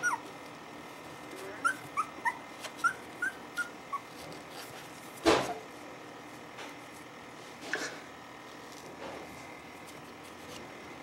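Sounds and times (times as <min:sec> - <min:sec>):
puppies whimpering: 0:00.0 - 0:00.3, 0:01.6 - 0:04.6.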